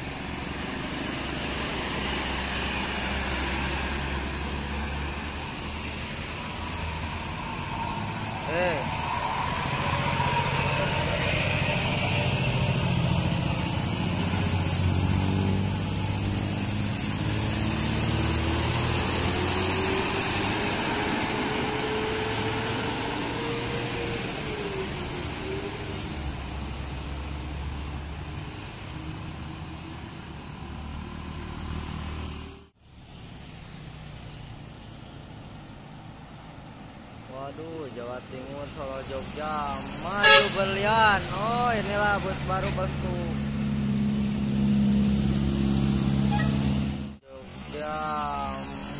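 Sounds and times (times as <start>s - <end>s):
bus engine pulling uphill: 0.0s - 48.9s
traffic hum: 0.0s - 48.9s
tyre hiss on wet road: 38.9s - 41.4s.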